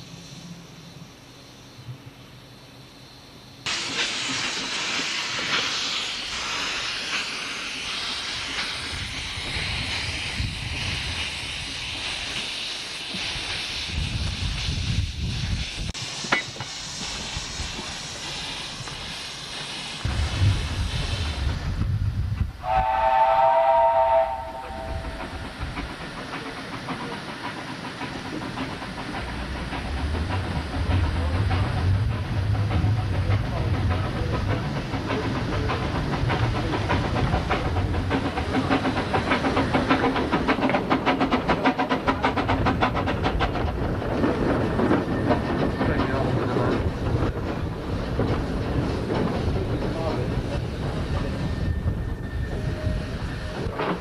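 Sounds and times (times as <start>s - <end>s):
train running: 0.0s - 54.0s
steam locomotive hissing: 3.5s - 54.0s
steam locomotive whistle: 22.6s - 25.5s.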